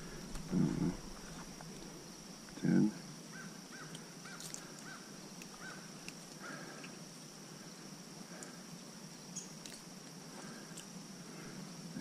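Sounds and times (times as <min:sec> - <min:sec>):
high-pitched insect drone: 0:00.0 - 0:12.0
bird chirps: 0:09.3 - 0:09.6.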